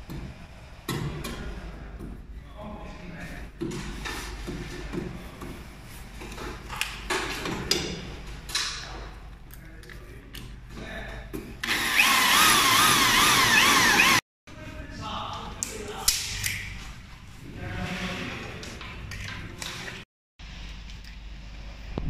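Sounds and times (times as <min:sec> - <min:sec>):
cordless drill boring: 0:11.6 - 0:14.2.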